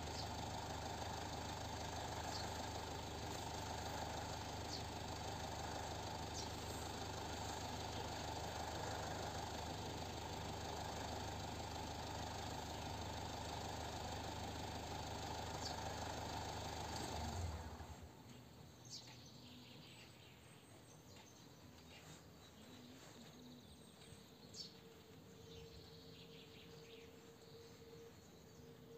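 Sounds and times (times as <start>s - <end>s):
faint bird chirps: 0.0s - 0.5s, 2.0s - 9.4s, 15.5s - 16.0s, 18.8s - 28.9s
engine idling: 0.0s - 19.5s.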